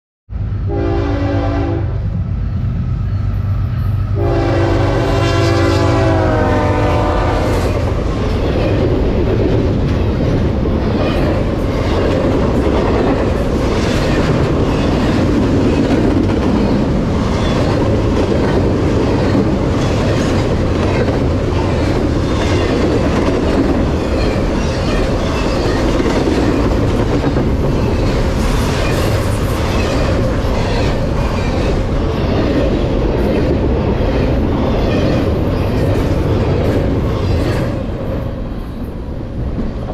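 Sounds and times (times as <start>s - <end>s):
diesel locomotives rumbling: 0.3s - 39.9s
train air horn: 0.7s - 2.0s, 4.2s - 7.8s.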